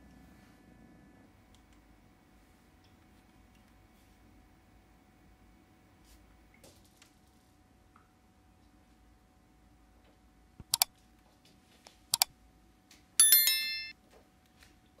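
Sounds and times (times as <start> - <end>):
mouse double-click: 10.6 - 10.9
notification bell ding: 13.2 - 13.9.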